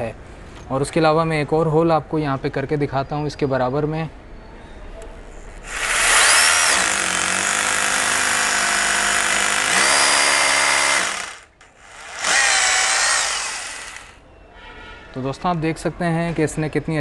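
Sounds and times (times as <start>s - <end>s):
rotary hammer drilling into wall: 5.6s - 14.2s.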